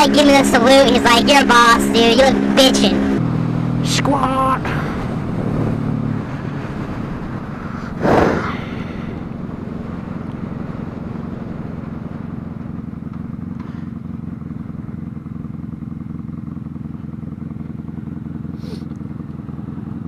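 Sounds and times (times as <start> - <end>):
motorcycle engine running: 0.0 - 20.0
loud rush of noise: 7.0 - 10.1.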